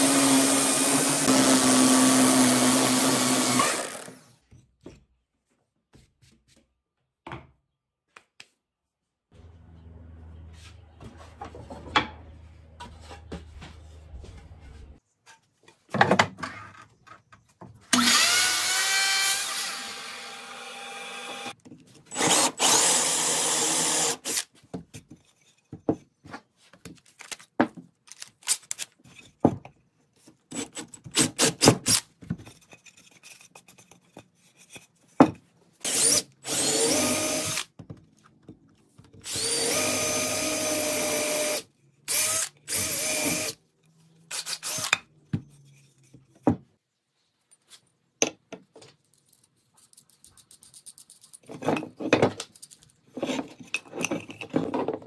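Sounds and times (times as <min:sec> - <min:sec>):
cordless drill boring into wood: 0:00.0 - 0:04.3, 0:17.9 - 0:24.5, 0:35.8 - 0:37.7, 0:39.2 - 0:43.6, 0:44.3 - 0:45.0
knocks and clicks of tools handled: 0:47.5 - 0:55.0.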